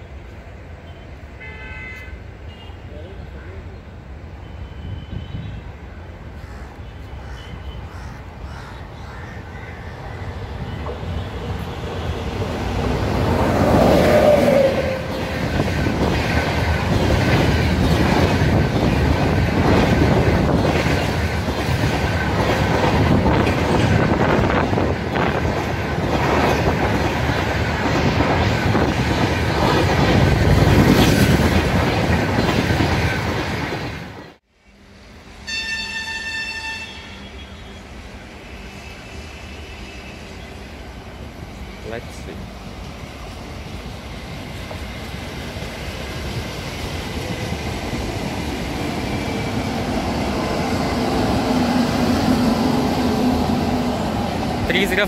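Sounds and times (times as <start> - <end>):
train passing at speed: 0.0 - 55.0
distant horn-like tone: 35.5 - 37.9.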